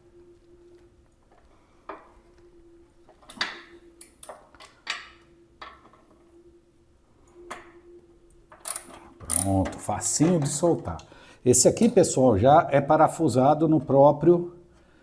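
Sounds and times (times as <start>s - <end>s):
wrench clicking on bolt: 8.6s - 9.5s.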